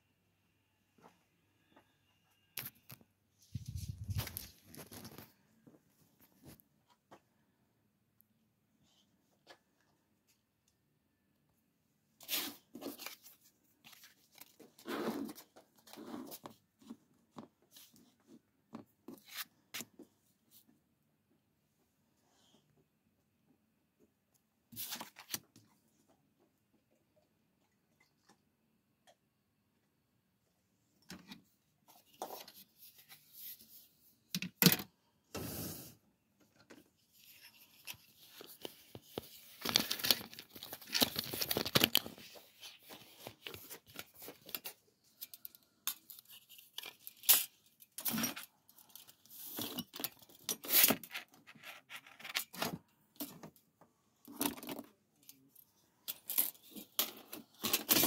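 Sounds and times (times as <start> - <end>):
scrapes and rustles: 2.6 - 6.6.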